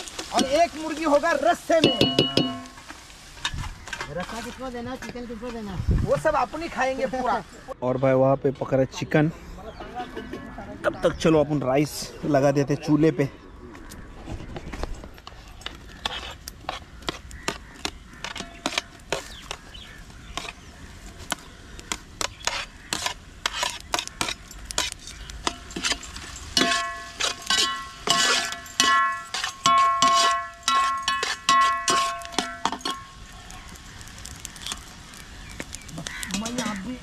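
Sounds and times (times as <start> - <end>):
metal pot clanging: 1.8 - 4.1, 22.9 - 33.2
spoon scraping metal pot: 15.6 - 19.6, 22.2 - 33.1.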